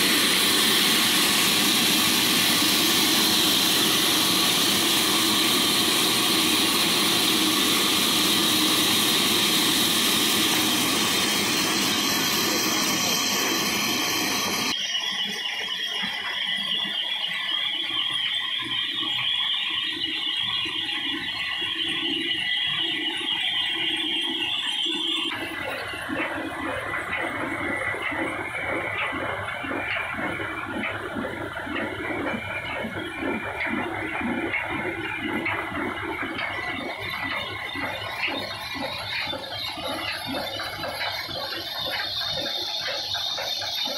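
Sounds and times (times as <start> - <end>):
machine low beat: 0.0 - 14.8, 25.3 - 43.9
band saw squealing: 0.0 - 19.4
high machine whine: 0.0 - 43.9.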